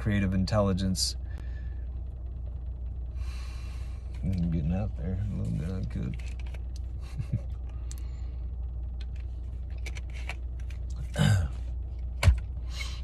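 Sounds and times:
car interior hum: 0.0 - 13.0
man swallowing: 10.9 - 11.7.

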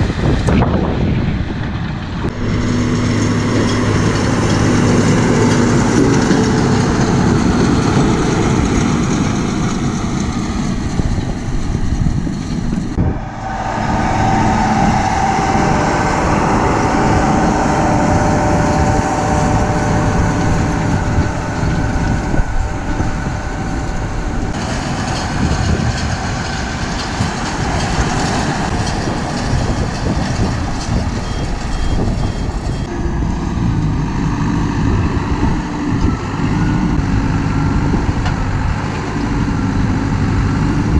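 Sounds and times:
tractors pulling hay machinery: 0.0 - 40.9
steady machine whine: 12.6 - 31.2.

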